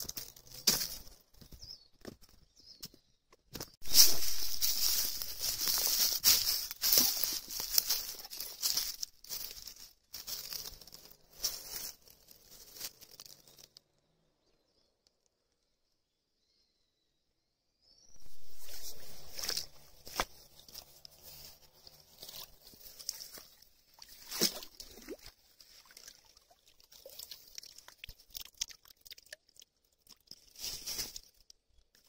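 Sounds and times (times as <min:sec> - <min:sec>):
footsteps crunching dry leaves: 0:00.0 - 0:01.6, 0:03.8 - 0:13.7, 0:18.1 - 0:26.0, 0:30.5 - 0:31.3.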